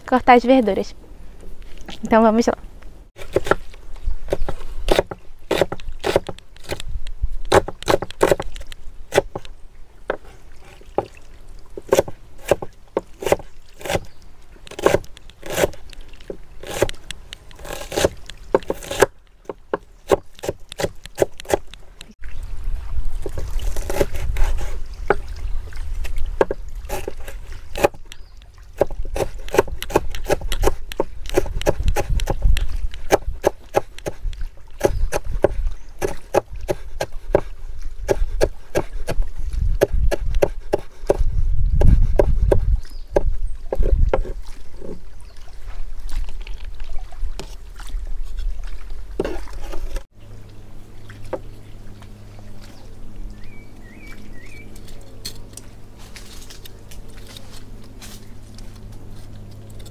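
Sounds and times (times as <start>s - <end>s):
knife chopping on wooden board: 4.3s - 6.8s, 7.5s - 9.5s, 11.8s - 14.0s, 14.7s - 17.0s, 17.6s - 21.7s, 28.8s - 34.2s, 34.8s - 37.5s, 38.1s - 39.2s, 39.8s - 41.2s, 41.8s - 42.6s.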